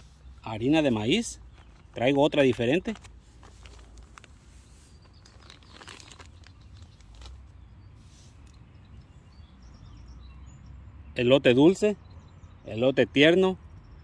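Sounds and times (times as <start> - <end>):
plastic packaging crinkling: 1.5 - 7.4.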